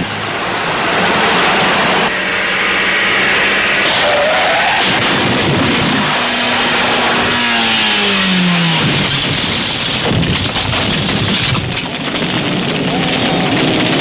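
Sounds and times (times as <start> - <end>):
explosion and fire roar: 0.0 - 14.0
clattering impacts: 8.8 - 12.0.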